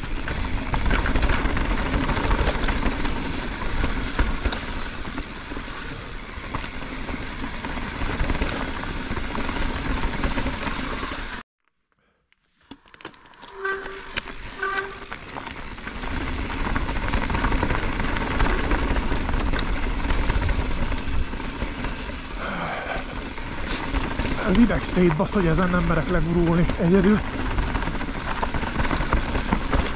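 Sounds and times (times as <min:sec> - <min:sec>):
bike tyres rattling over gravel: 0:00.0 - 0:11.4, 0:12.8 - 0:29.9
short squeaks: 0:13.4 - 0:15.5.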